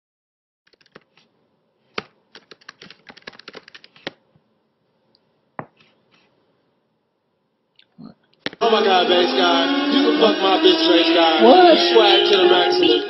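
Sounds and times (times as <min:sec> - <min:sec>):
typing on computer keyboard: 0:00.7 - 0:01.2, 0:02.0 - 0:04.2.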